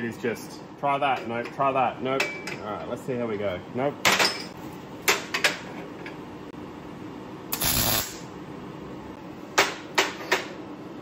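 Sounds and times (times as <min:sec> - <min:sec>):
welder crackling: 0:07.5 - 0:08.3.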